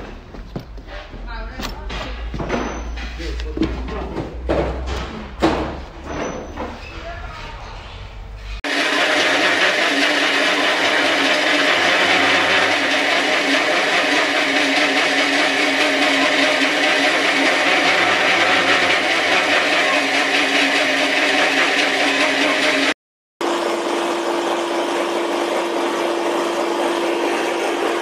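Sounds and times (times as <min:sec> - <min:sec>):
pellet mill whining and grinding: 0:08.6 - 0:28.0.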